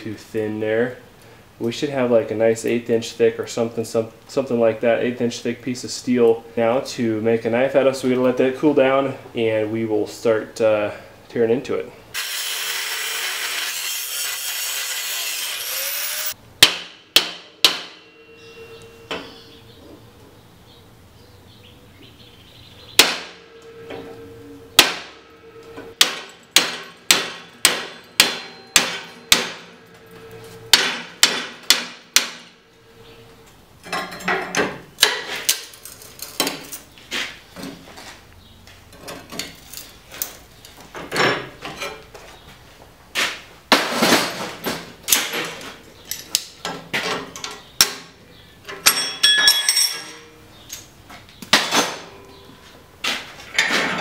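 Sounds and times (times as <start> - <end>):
angle grinder cutting steel: 12.2 - 16.4
hammer striking steel: 16.6 - 19.5, 23.0 - 32.6, 48.8 - 50.3.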